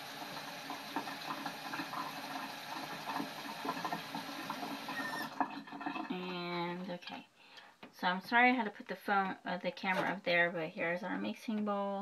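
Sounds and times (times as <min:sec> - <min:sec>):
tap running water into cup: 0:00.0 - 0:06.1.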